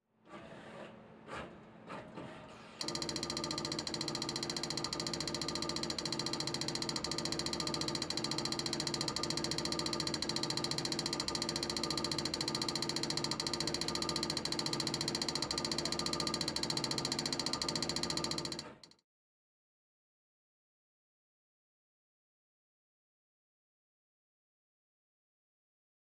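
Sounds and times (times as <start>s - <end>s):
rapid mechanical buzz: 2.8s - 18.9s
short quiet machine sounds: 2.8s - 18.9s.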